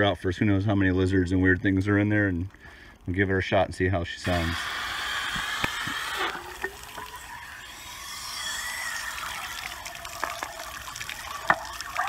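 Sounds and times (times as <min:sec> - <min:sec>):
water running over a shell: 0:04.2 - 0:12.0.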